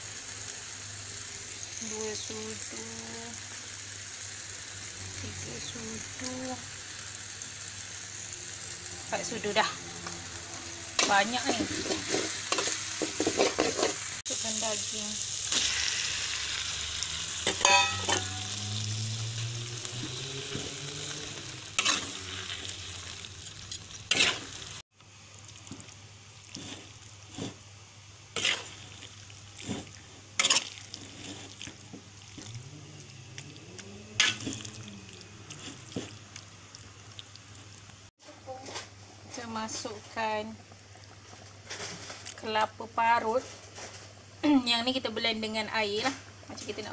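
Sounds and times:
meat sizzling in oil: 0:00.0 - 0:38.1
metal spatula scraping wok: 0:09.0 - 0:14.2, 0:15.5 - 0:24.8, 0:28.4 - 0:33.4, 0:34.1 - 0:36.3.

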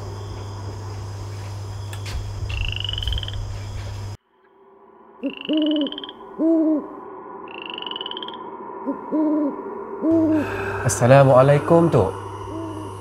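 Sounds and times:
owl hooting: 0:02.5 - 0:03.5, 0:05.2 - 0:13.0
high pulsing trill: 0:10.1 - 0:13.0.

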